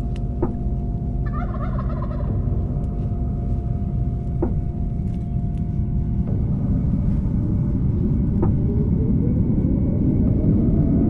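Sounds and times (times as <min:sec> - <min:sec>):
steady low rumble: 0:00.0 - 0:11.0
turkey gobbling: 0:01.2 - 0:02.3.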